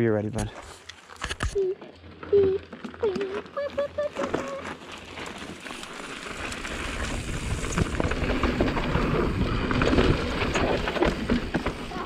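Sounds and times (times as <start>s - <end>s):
bike tyre rumble: 1.8s - 12.0s
wind noise on microphone: 6.6s - 12.0s.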